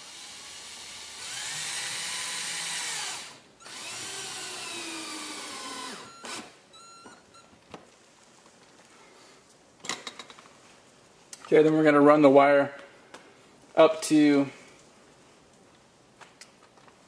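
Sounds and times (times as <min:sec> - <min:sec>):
cordless drill whirring: 0:00.0 - 0:06.6.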